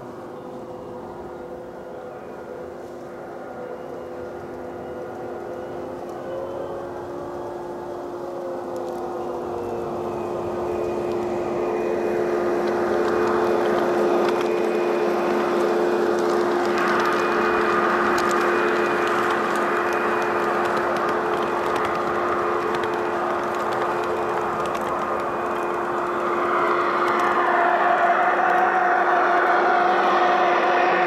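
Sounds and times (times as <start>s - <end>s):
diesel engine drone from loudspeaker: 8.7s - 31.0s.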